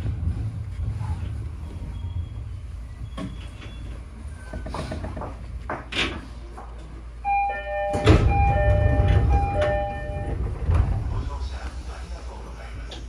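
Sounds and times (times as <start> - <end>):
low train rumble: 0.0 - 5.7, 6.3 - 13.0
electronic chime melody: 7.3 - 10.3.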